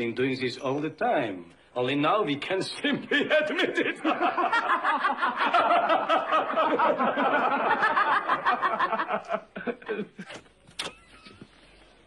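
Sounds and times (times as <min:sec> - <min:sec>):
hearty laughter: 0:02.8 - 0:10.4.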